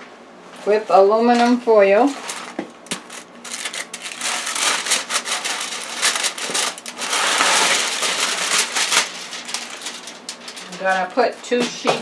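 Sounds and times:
aluminum foil crinkling: 1.3s - 12.0s.

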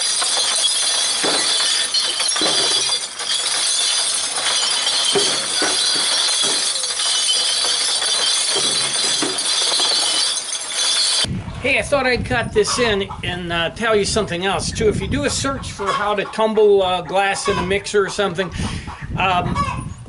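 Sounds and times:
cement mixer drum tumbling glass: 0.0s - 11.3s
glass bottles smashing: 0.0s - 11.3s.

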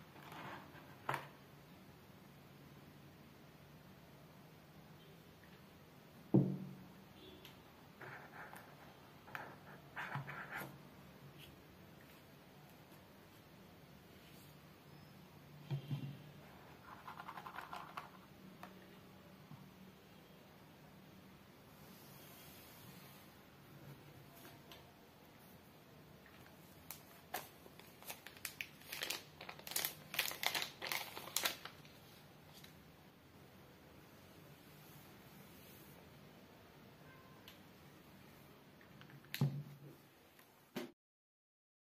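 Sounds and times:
thump on a table: 6.3s - 6.8s, 39.4s - 39.7s, 40.7s - 40.9s
cable rustling: 26.2s - 32.8s
plastic film crinkling: 26.4s - 32.7s
cardboard packaging rustling: 26.9s - 32.7s.

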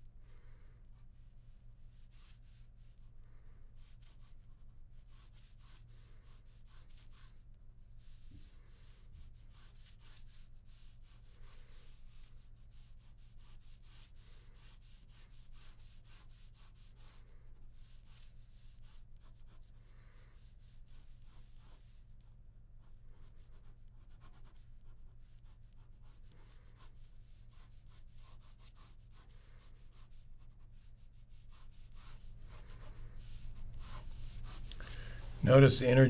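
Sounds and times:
pen scratching on paper: 8.0s - 17.2s, 17.8s - 22.0s, 22.8s - 35.2s.

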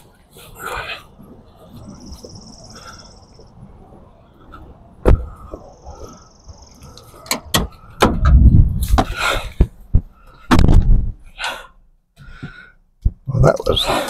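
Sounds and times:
sharp clicks and knocks: 7.0s - 11.0s.

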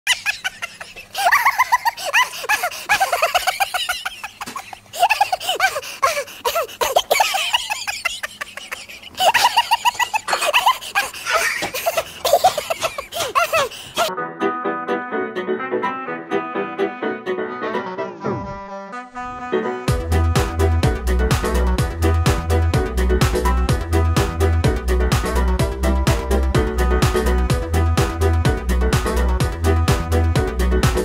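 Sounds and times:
high-pitched laughter: 0.1s - 14.1s
instrumental music: 14.1s - 31.0s.

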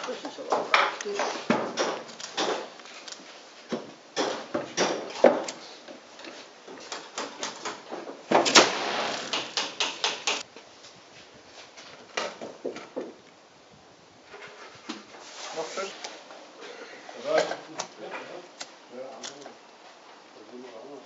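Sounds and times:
scattered knocks and clicks: 9.2s - 10.4s.

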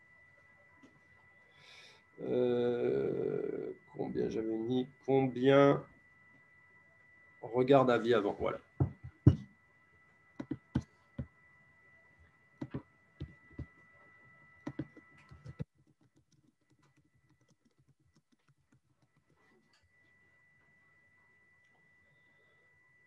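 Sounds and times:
keyboard typing: 10.4s - 10.9s, 12.6s - 13.9s, 14.6s - 19.8s.

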